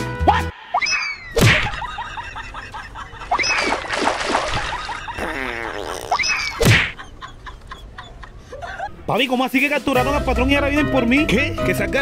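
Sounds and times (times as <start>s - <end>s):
loud comedy whack: 1.4s - 1.8s, 6.6s - 7.0s.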